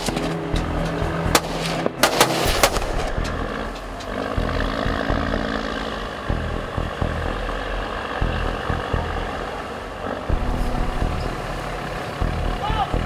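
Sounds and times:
ship engine droning: 0.0s - 13.0s
wind: 0.0s - 13.0s.

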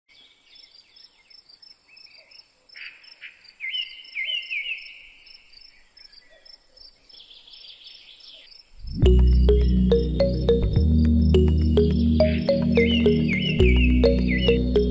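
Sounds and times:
insects trilling and chirping: 0.5s - 9.7s
bird calling: 12.0s - 14.9s.

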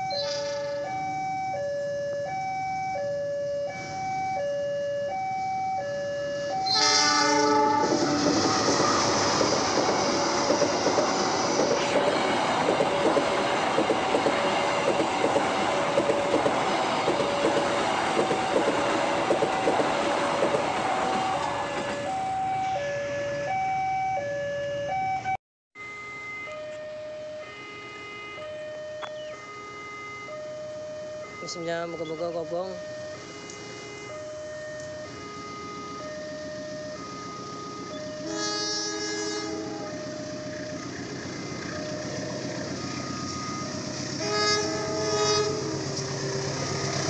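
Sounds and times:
train passing with rumble: 0.0s - 25.3s, 28.4s - 47.0s
train horn blast: 0.2s - 0.9s, 6.6s - 9.4s, 37.0s - 40.4s, 43.2s - 47.0s
level crossing warning bell: 23.5s - 47.0s.

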